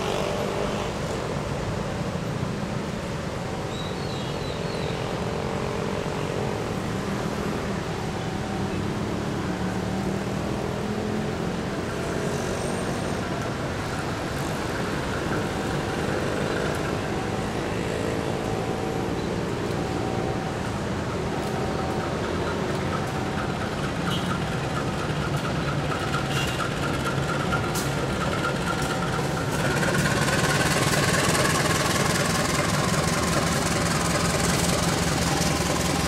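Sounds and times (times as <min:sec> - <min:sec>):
distant diesel locomotive drone: 0:00.0 - 0:36.0
street traffic hum: 0:00.0 - 0:36.0.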